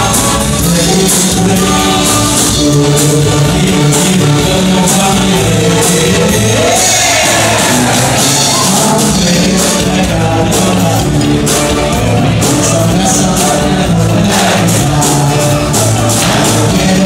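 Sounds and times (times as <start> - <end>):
loud dance music with singer: 0.0 - 10.0, 12.2 - 17.0.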